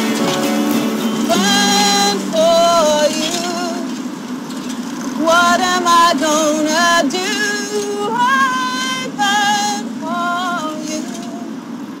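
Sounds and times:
musical accompaniment: 0.0s - 3.5s
woman singing long notes: 0.0s - 4.0s, 5.2s - 11.6s.

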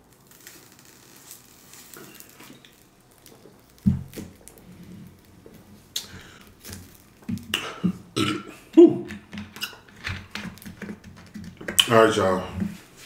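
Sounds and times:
man burping: 7.4s - 9.2s.

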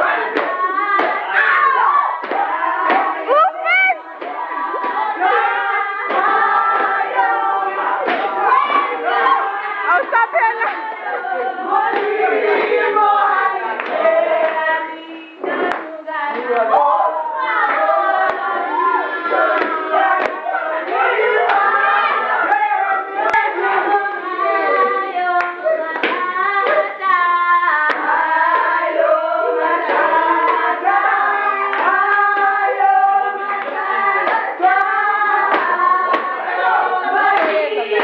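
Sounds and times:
group singing unaccompanied: 0.0s - 38.0s
hand claps: 0.3s - 1.2s, 2.2s - 3.2s, 6.1s - 7.2s, 8.0s - 9.0s, 13.8s - 14.6s, 15.6s - 16.7s, 17.6s - 18.5s, 19.5s - 22.2s, 23.2s - 23.5s, 25.4s - 27.1s, 27.8s - 28.8s, 31.6s - 38.0s.

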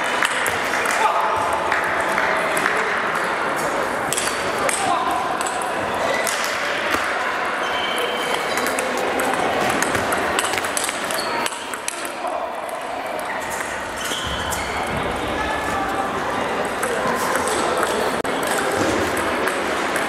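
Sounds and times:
chatter in a hall: 0.0s - 20.0s.

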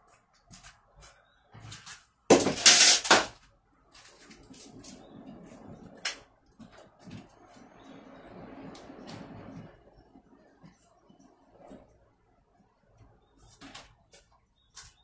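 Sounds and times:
potting soil rustling and scraping: 3.8s - 9.8s.

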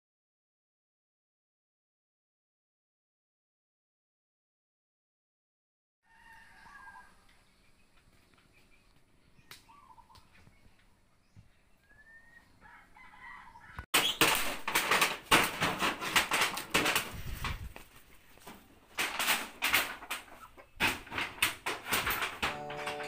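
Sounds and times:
chickens clucking: 20.0s - 20.9s.

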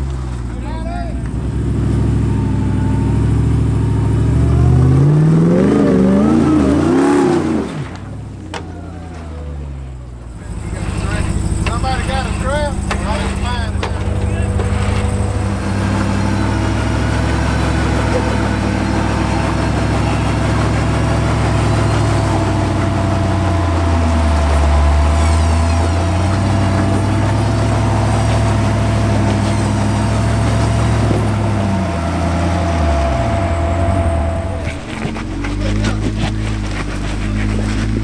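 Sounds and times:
engine running at low revs: 0.0s - 38.0s
thin steady whine: 8.5s - 35.9s.

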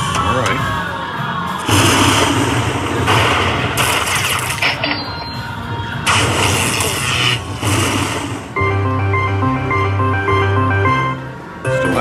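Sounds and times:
hissing crackling bursts: 6.0s - 8.6s.

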